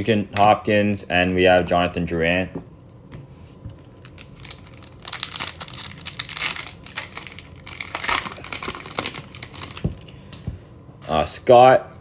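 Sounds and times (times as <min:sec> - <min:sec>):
foil wrapper tearing and crinkling: 0:03.9 - 0:09.9.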